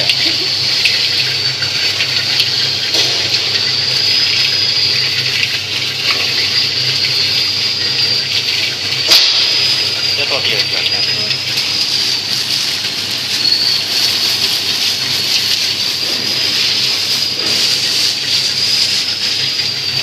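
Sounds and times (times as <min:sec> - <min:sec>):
peanuts rattling in rotating pan: 0:00.0 - 0:20.0
thin high whine: 0:00.0 - 0:20.0.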